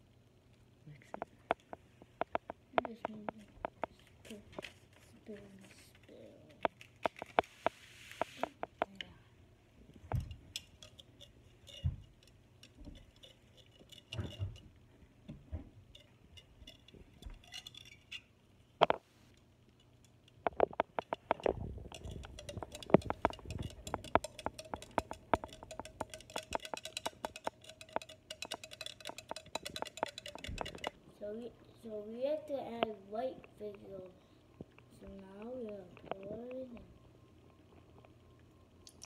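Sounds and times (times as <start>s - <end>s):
spoon clinking in plastic tumbler: 10.2s - 14.7s, 15.8s - 18.3s, 21.0s - 30.9s.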